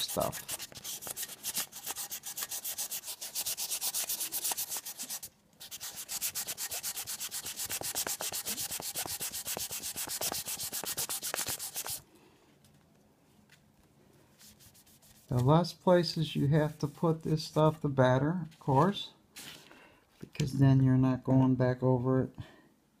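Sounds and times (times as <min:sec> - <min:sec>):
sandpaper rubbing on metal: 0:00.0 - 0:12.0.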